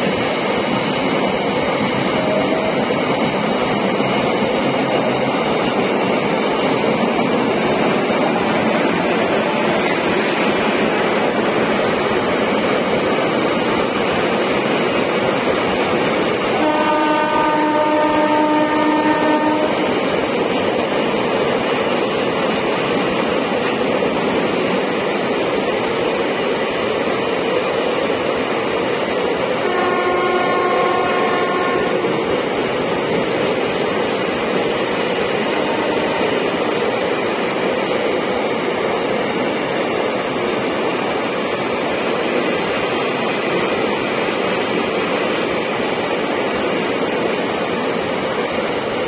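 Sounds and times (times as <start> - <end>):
train wheels on rails: 0.0 - 49.0
locomotive horn: 16.5 - 20.0, 29.6 - 32.2, 35.6 - 36.4.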